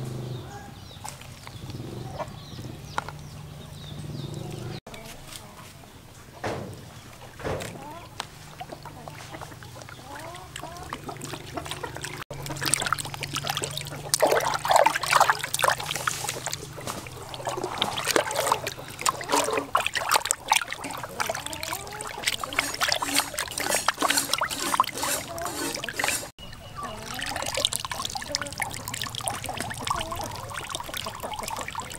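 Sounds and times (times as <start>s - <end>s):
water sloshing in a plastic basin: 0.8s - 31.9s
wet slaps and drips: 6.6s - 26.3s, 27.0s - 31.9s.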